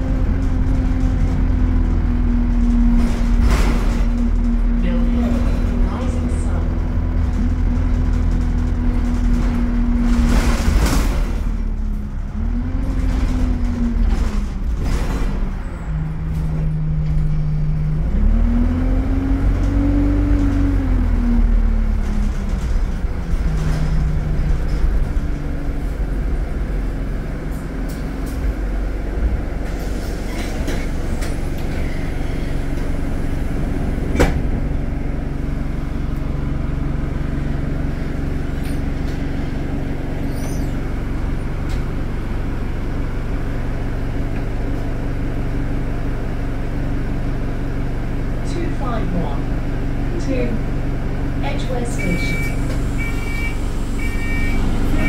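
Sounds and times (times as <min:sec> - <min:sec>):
bus engine rumble: 0:00.0 - 0:55.0
rattles and knocks: 0:00.1 - 0:15.6.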